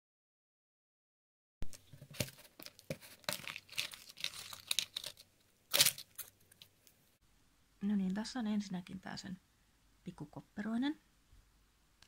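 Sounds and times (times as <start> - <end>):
packaging tearing and crinkling: 2.1 - 6.7.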